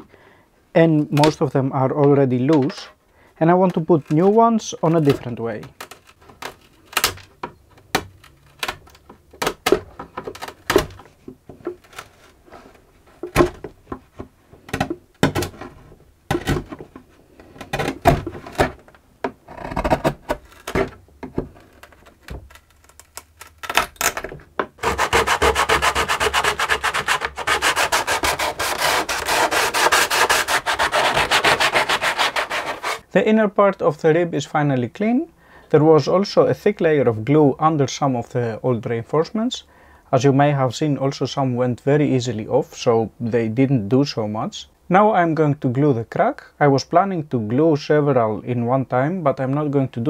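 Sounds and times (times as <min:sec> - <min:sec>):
wood cracking off under chisel: 0:17.6 - 0:25.0
rapid scraping of wood: 0:24.8 - 0:33.0.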